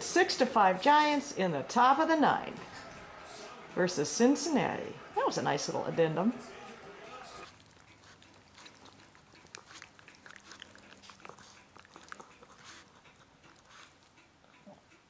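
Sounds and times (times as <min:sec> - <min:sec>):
dogs snapping and mouthing: 0:07.4 - 0:14.1.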